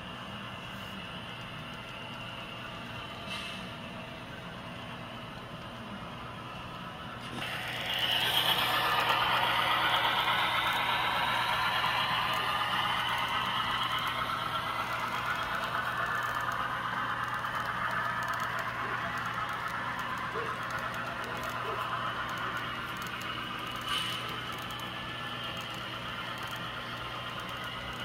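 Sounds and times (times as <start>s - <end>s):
model train wheels rattling: 7.3s - 28.0s
motor whine: 7.4s - 28.0s.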